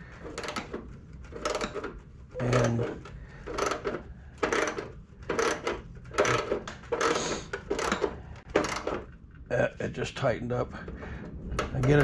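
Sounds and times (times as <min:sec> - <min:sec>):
socket ratchet clicking: 0:03.5 - 0:09.2.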